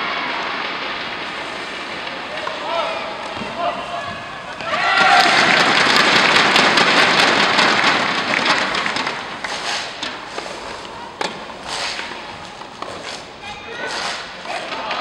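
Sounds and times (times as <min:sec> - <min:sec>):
spectators clapping: 0:04.4 - 0:10.2.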